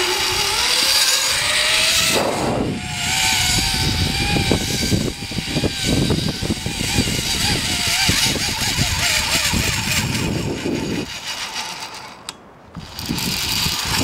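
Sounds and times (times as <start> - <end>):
zip line trolley whining: 0.0 - 14.0
wind buffeting microphone: 1.4 - 11.2, 12.7 - 14.0.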